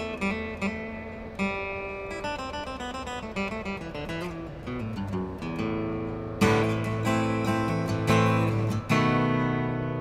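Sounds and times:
guitar picked notes: 0.0 - 10.0
strummed guitar chord: 0.0 - 10.0.

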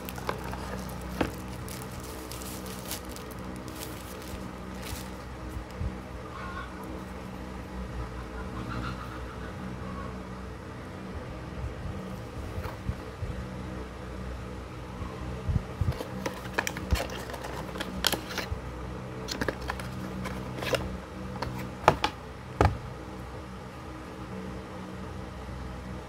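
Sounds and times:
cardboard and paper rustling: 0.0 - 5.4, 15.9 - 18.5, 19.3 - 22.2
steady low hum: 0.0 - 26.0.

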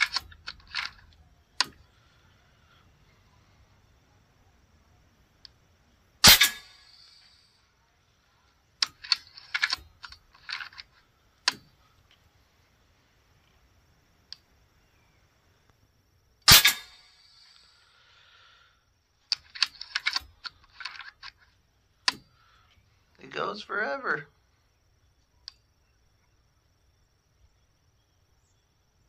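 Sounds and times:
rifle action clicking and rattling: 0.0 - 1.8, 8.8 - 12.2, 19.3 - 22.3
air rifle firing: 6.2 - 7.3, 16.5 - 17.6.

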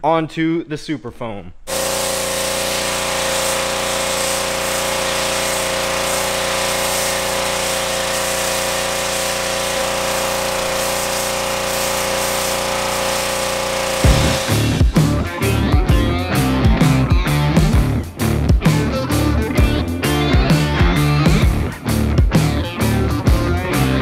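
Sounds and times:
spray hissing: 1.7 - 15.1
pressure washer running: 1.7 - 15.7.

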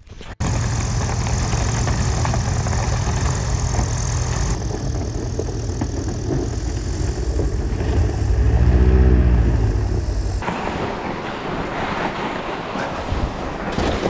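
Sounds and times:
airboat engine and propeller: 0.4 - 10.6.

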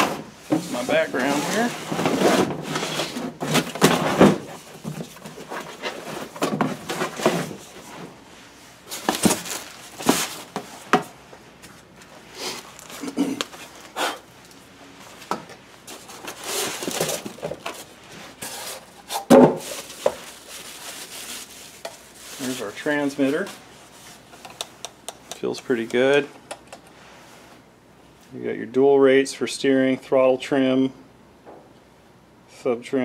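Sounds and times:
cardboard and packing rustling: 0.0 - 14.0, 15.0 - 24.4.

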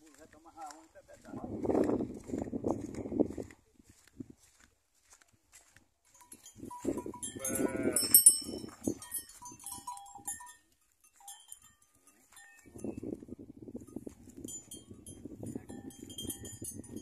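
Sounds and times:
calf bawling: 7.4 - 8.2.

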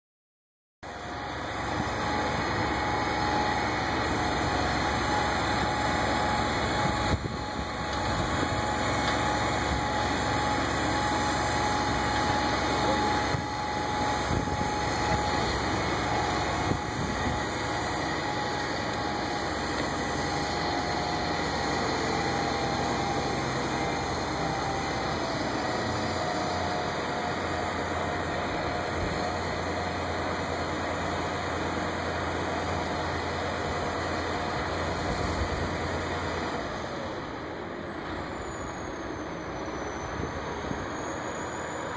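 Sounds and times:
truck engine running: 0.8 - 41.9
faint steady whine: 0.9 - 41.9.

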